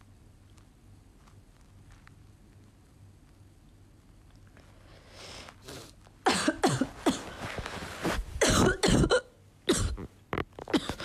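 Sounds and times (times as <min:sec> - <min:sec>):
woman coughing: 0:06.3 - 0:07.4, 0:08.4 - 0:10.1, 0:10.7 - 0:11.0
woman clearing throat: 0:08.4 - 0:11.0.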